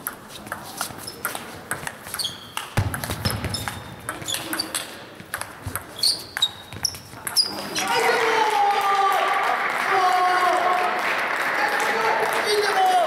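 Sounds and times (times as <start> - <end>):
shoes squeaking on floor: 0.3 - 7.9.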